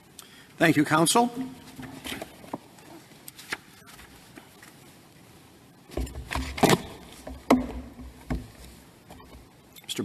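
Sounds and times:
knocks on lectern: 0:01.3 - 0:02.2, 0:06.0 - 0:08.6
rustling at microphone: 0:01.3 - 0:05.0.

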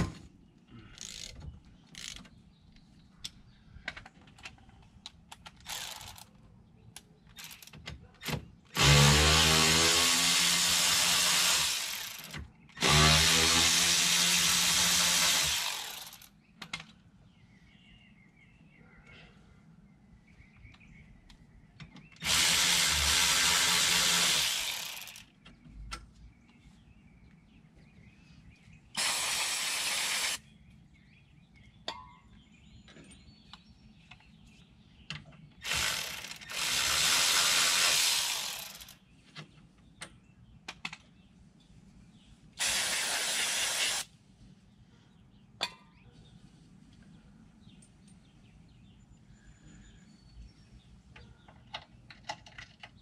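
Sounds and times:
small clicks and knocks: 0:01.0 - 0:08.4, 0:16.2 - 0:17.0, 0:39.3 - 0:41.2, 0:51.1 - 0:53.0
power tool spinning a bit: 0:22.2 - 0:25.2, 0:29.0 - 0:30.4, 0:35.6 - 0:39.0, 0:42.6 - 0:44.1.

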